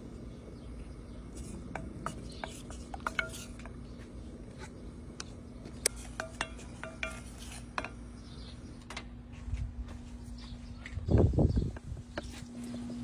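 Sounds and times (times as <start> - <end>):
steady low hum: 0.0 - 13.0
wooden spoon scraping a saucepan: 1.3 - 4.8, 5.8 - 8.4.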